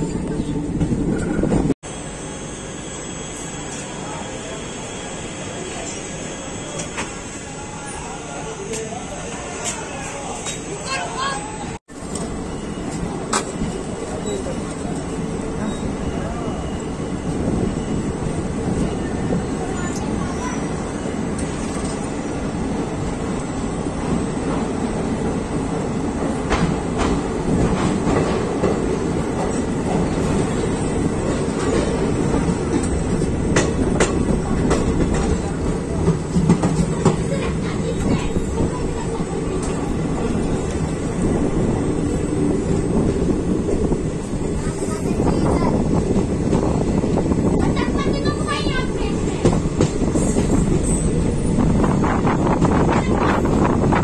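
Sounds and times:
train wheel rumble: 0:00.0 - 0:54.0
rail-joint clicks: 0:12.0 - 0:15.7, 0:26.3 - 0:41.0, 0:48.6 - 0:53.9.

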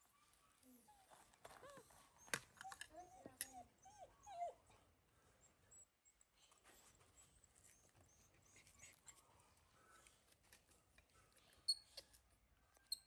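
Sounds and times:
faint clicks and rustles: 0:06.3 - 0:12.9.

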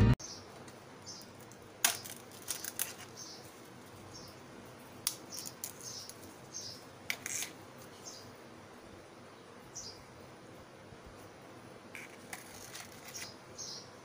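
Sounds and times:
flatbread snapping and crackling: 0:01.2 - 0:03.4, 0:05.0 - 0:06.4.

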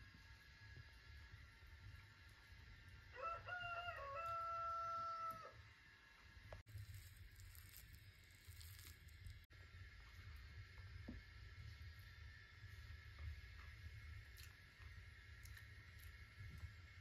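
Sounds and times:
rooster crowing: 0:03.1 - 0:05.6.

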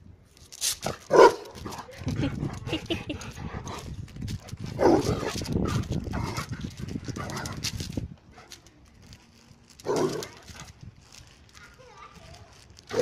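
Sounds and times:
dog barking and yipping: 0:01.1 - 0:01.5.

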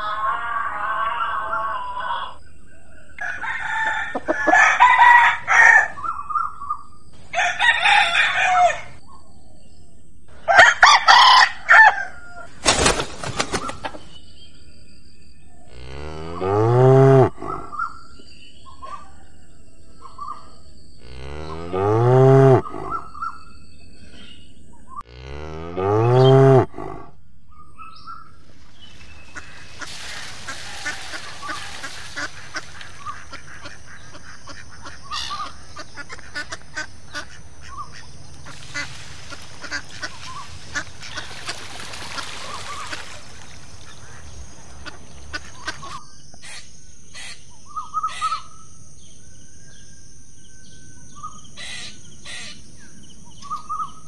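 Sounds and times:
rooster crowing: 0:00.0 - 0:02.4, 0:03.2 - 0:06.1, 0:07.3 - 0:09.0, 0:10.5 - 0:12.5, 0:30.5 - 0:33.3
cow mooing: 0:15.7 - 0:17.6, 0:21.0 - 0:23.0, 0:25.0 - 0:27.1.

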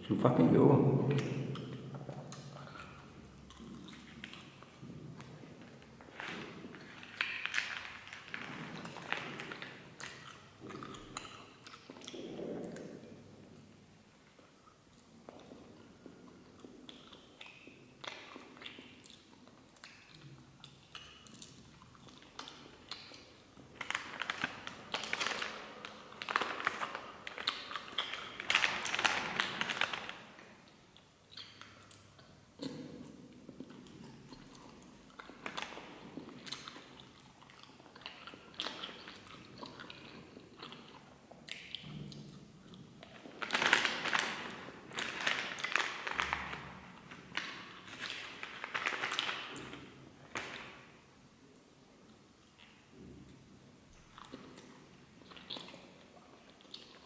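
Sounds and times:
foil wrapper crinkling: 0:23.8 - 0:30.2, 0:43.3 - 0:49.7
foil paper crinkling: 0:43.3 - 0:49.5.

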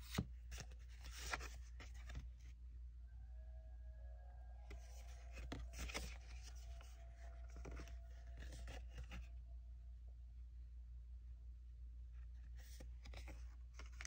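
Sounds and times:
low steady hum: 0:00.0 - 0:14.0
paper rustling and scraping: 0:04.7 - 0:09.3.

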